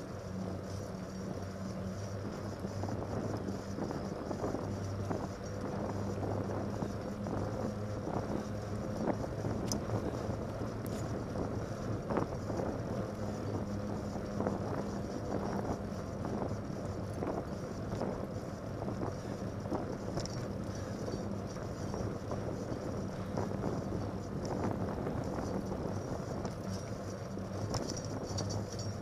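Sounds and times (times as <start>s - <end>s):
bike clicks and rattles: 0.0s - 29.0s
bike tyres humming on wet road: 0.0s - 29.0s
wind noise on microphone: 0.0s - 29.0s.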